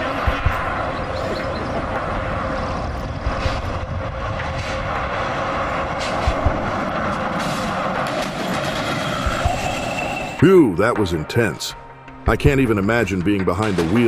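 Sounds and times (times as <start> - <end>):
heavy truck engine running: 0.0 - 10.4.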